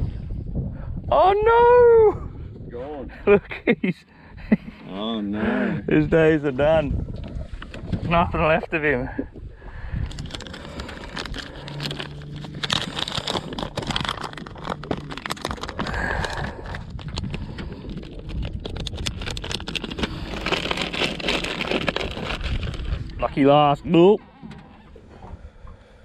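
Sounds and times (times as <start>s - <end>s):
low steady hum: 1.6s - 26.0s
plastic packet crinkling: 10.0s - 23.2s.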